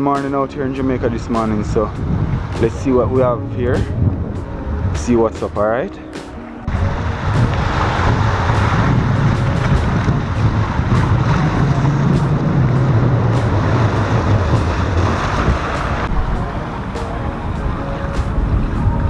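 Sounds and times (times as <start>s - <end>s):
wind rumbling on microphone: 0.0s - 6.0s, 6.6s - 19.0s
sea surf breaking on rocks: 6.6s - 19.0s.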